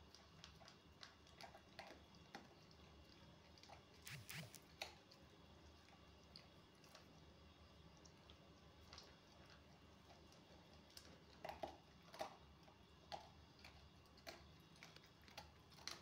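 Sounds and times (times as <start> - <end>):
dog chewing food from bowl: 0.0 - 7.2, 8.0 - 16.0.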